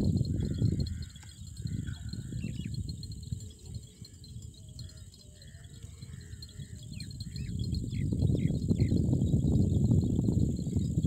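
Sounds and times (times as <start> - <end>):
insects chirring: 0.0 - 11.0
bird chirps: 0.3 - 2.9, 3.5 - 10.9.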